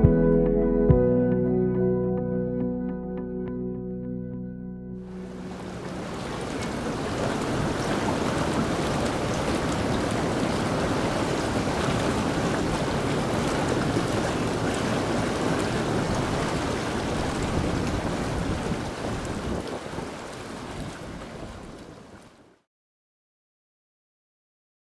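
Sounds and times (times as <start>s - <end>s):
whirlpool bath jets bubbling: 5.0s - 22.4s.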